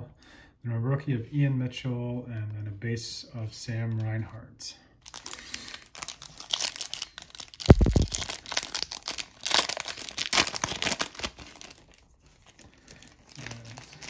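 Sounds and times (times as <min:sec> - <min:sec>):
foil wrapper crinkling and tearing: 0:05.0 - 0:14.0.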